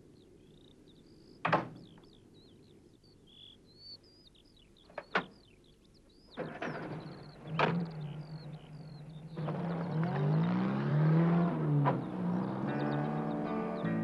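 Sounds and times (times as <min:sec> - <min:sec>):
birds chirping and singing: 0:00.0 - 0:14.0
van engine starting and humming: 0:06.3 - 0:14.0.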